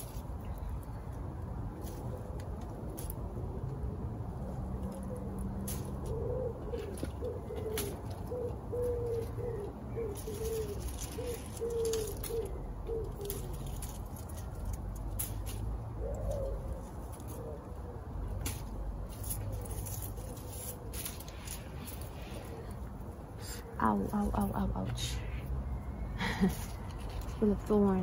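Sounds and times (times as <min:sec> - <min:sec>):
bramble leaves rustling: 0:00.0 - 0:03.5, 0:04.3 - 0:28.0
pigeon cooing: 0:04.6 - 0:18.6.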